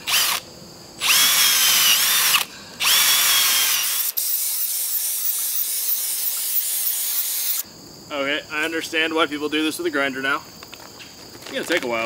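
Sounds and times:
cordless drill boring into wood: 0.0s - 0.4s, 1.0s - 7.6s.

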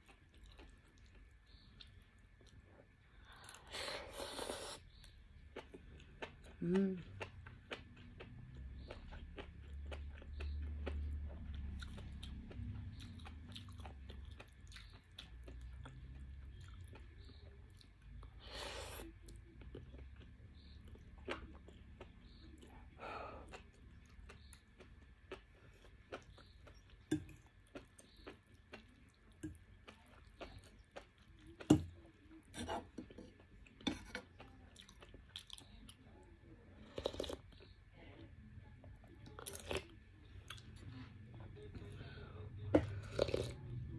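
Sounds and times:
close-up chewing: 0.0s - 3.7s, 4.9s - 36.1s
slurping: 3.6s - 5.0s.

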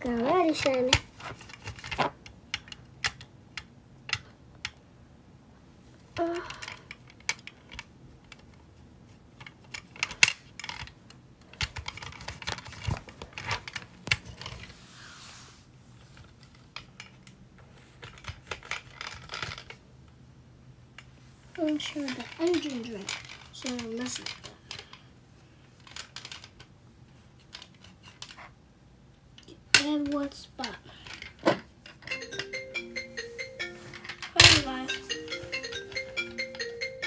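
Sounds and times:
cloth rubbing swish: 14.7s - 15.7s.

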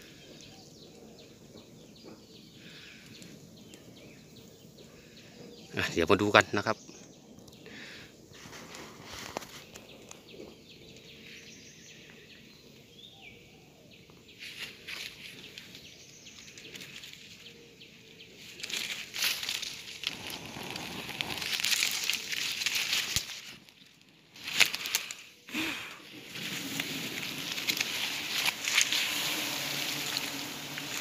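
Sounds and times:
leaves and twigs rustling: 7.7s - 11.6s, 14.3s - 31.0s.

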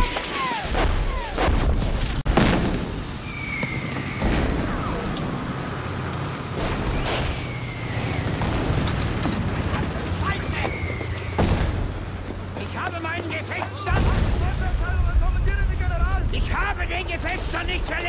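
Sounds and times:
heavy explosions: 0.8s - 3.3s, 13.9s - 16.9s
low rumble of vehicle engines: 2.3s - 18.0s.

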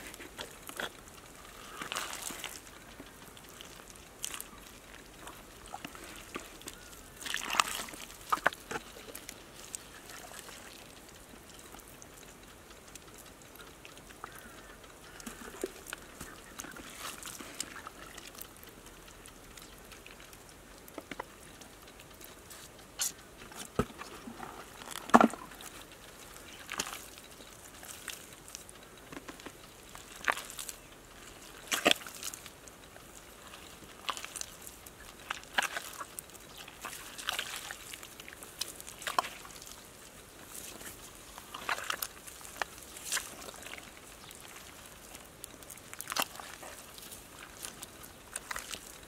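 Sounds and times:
hands digging wet mud: 0.0s - 12.2s, 13.1s - 18.8s, 22.0s - 49.0s
wet slaps and splashes: 35.2s - 39.7s, 41.5s - 43.8s, 46.0s - 48.9s.

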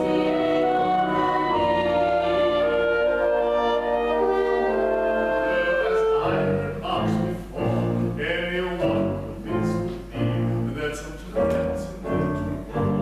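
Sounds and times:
man singing: 5.5s - 13.0s.

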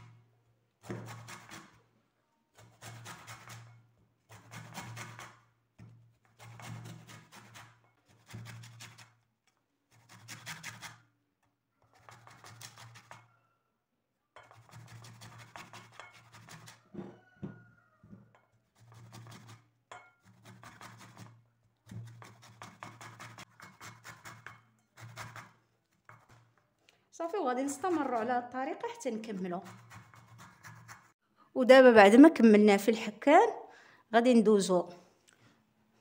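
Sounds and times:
lemon grated on metal grater: 14.4s - 16.8s, 18.7s - 19.6s, 20.2s - 26.6s, 27.4s - 31.1s.

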